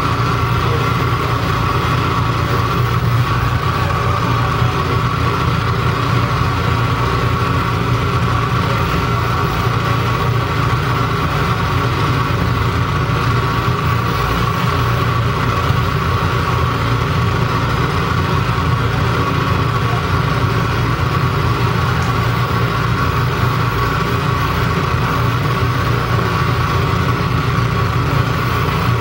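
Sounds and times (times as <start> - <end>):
held mid-pitched tone: 0.0 - 15.0
low hum: 0.0 - 29.0.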